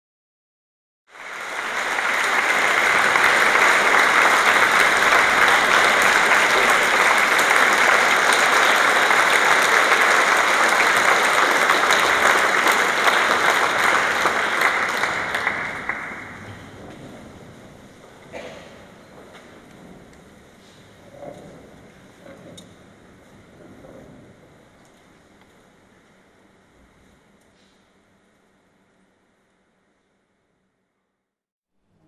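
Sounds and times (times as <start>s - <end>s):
audience applauding: 1.1s - 19.9s.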